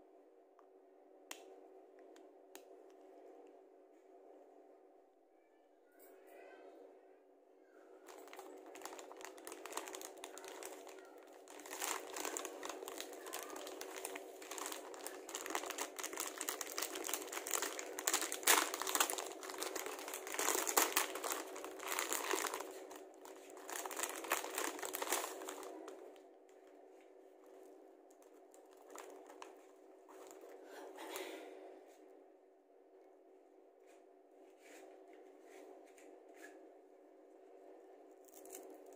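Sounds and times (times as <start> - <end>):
plastic wrapper crinkling: 8.0 - 26.2, 27.4 - 31.3, 38.2 - 38.9
plastic tray rustling: 8.1 - 25.7.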